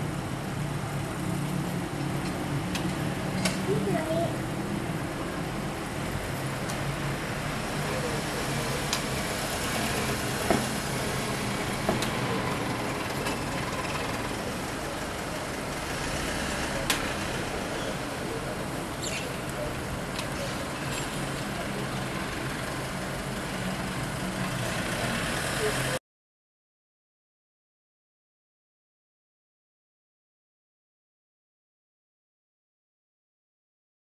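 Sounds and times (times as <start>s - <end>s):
truck engine idling: 6.0s - 26.0s.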